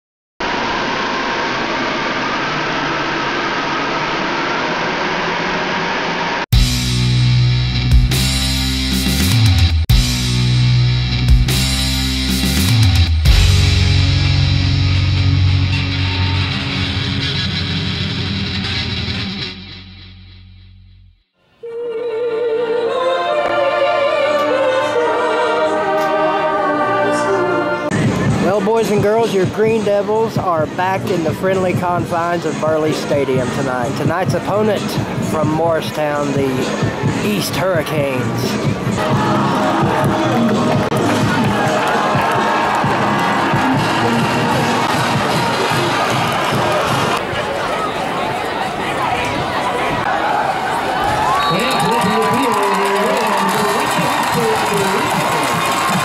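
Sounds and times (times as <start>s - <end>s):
woman singing with vibrato: 21.6s - 27.9s.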